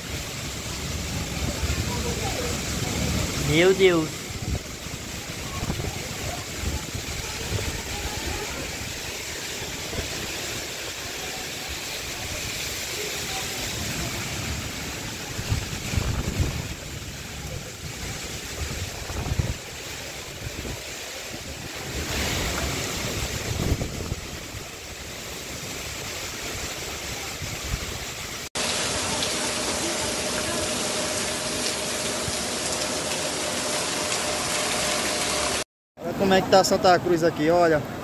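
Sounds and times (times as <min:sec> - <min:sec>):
gusting wind: 0:00.0 - 0:28.7
heavy rain: 0:00.0 - 0:38.0
water running on a street: 0:00.0 - 0:38.0.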